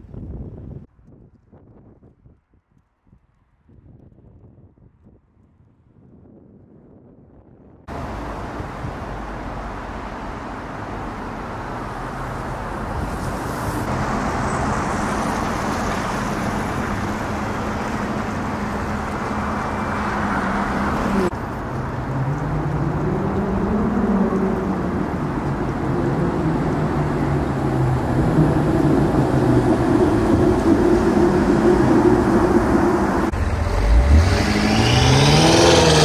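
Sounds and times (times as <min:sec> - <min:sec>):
traffic passing: 0:07.8 - 0:36.0.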